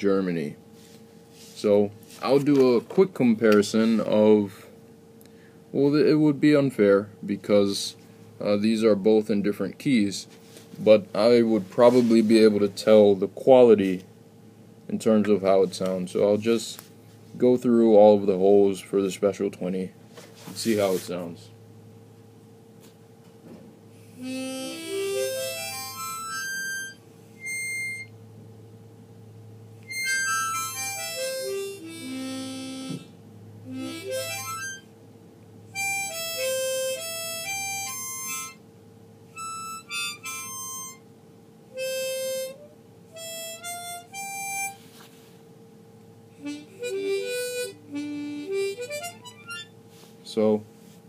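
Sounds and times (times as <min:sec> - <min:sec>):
harmonica single notes: 0:24.1 - 0:28.2, 0:29.8 - 0:34.9, 0:35.7 - 0:38.6, 0:39.3 - 0:41.0, 0:41.7 - 0:45.1, 0:46.4 - 0:49.8.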